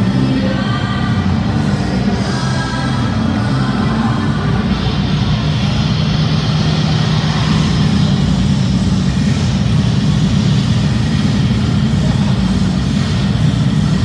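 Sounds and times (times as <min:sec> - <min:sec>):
dance music: 0:00.0 - 0:14.0
large crowd: 0:00.0 - 0:14.0.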